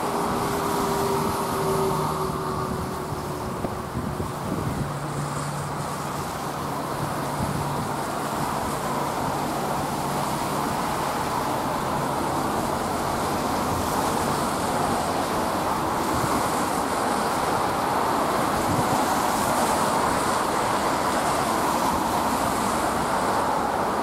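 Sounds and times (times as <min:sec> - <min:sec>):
road traffic noise: 0:00.0 - 0:24.0
tyres hissing on wet road: 0:00.0 - 0:24.0.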